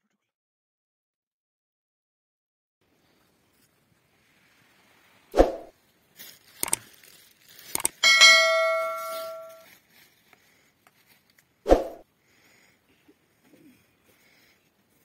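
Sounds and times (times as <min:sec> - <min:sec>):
sharp clicks: 0:06.6 - 0:06.8, 0:07.7 - 0:08.0
bell ding: 0:08.0 - 0:09.7.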